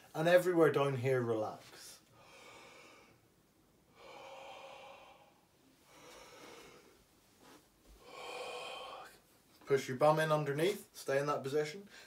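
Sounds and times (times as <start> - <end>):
man breathing deeply: 2.1 - 3.3, 3.9 - 7.1, 8.0 - 9.3.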